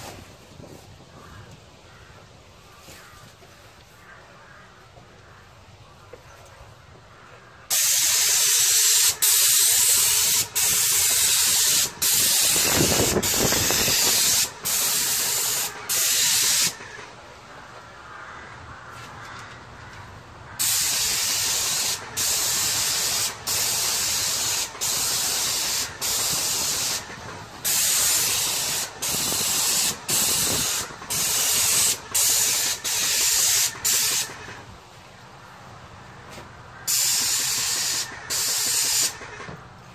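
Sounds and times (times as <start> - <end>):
paint spray gun hissing: 7.7 - 17.0, 20.6 - 34.6, 36.9 - 39.5.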